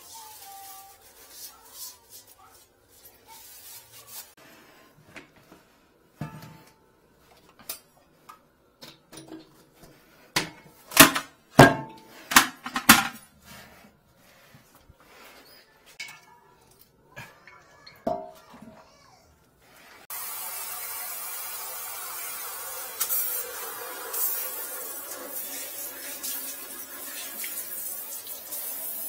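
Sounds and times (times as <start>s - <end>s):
hard objects knocking and clattering: 10.4s - 13.2s.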